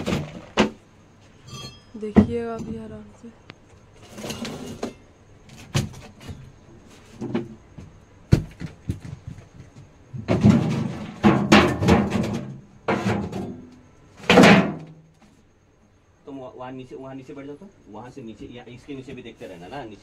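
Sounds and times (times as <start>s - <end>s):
objects knocking on wooden shelf: 0.0s - 0.8s, 7.2s - 13.6s.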